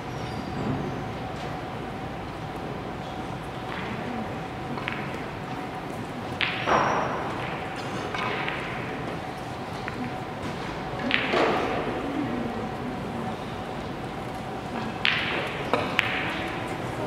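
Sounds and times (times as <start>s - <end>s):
billiard balls clicking: 3.6s - 10.3s, 14.2s - 16.8s.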